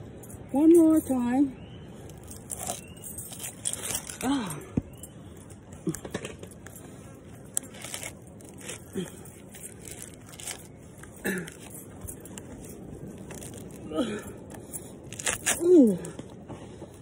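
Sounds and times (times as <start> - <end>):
coconut husk fibres tearing: 2.4 - 4.2, 7.5 - 11.7, 13.1 - 14.0, 15.0 - 16.2.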